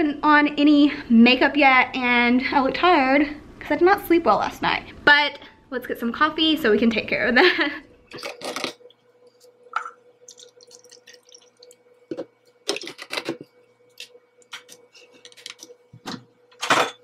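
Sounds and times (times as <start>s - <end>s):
coffee pouring into paper cup: 9.8s - 13.2s.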